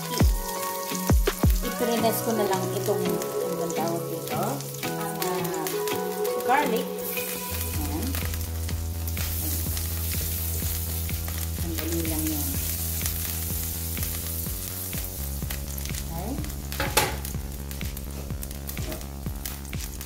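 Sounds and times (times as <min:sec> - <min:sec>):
garlic sizzling in hot oil: 0:00.0 - 0:20.0.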